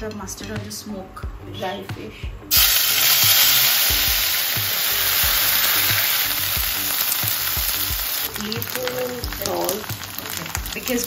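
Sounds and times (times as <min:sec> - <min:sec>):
fish sizzling in oil: 0:02.5 - 0:11.0.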